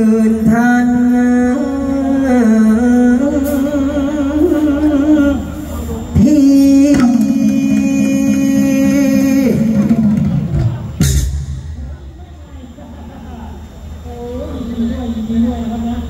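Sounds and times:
man chanting in long sung notes: 0:00.0 - 0:10.5.

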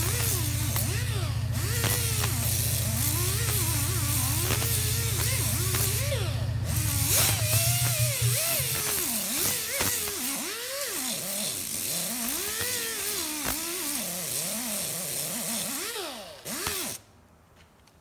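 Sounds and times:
air grinder whining on metal: 0:00.0 - 0:17.0.

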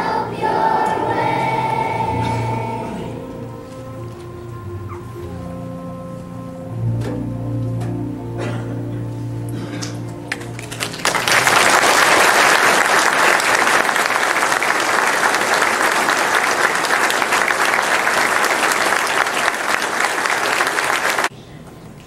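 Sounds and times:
audience applauding: 0:10.3 - 0:21.3.

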